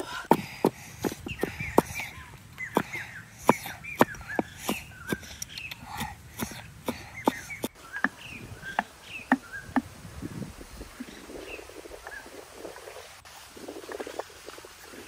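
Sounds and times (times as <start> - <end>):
cleaver chopping on wooden board: 0.3 - 2.0, 2.7 - 9.9
small birds chirping: 0.3 - 13.2.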